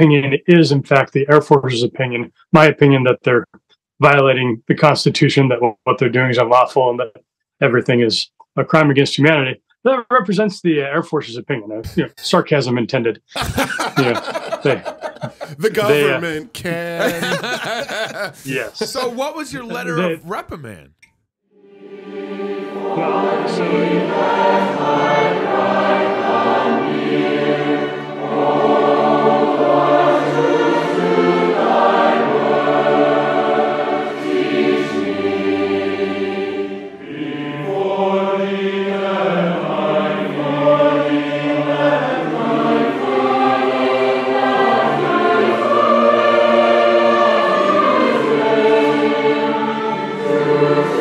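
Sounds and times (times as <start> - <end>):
choir singing a hymn: 13.4 - 16.3, 17.0 - 18.4, 21.8 - 51.0.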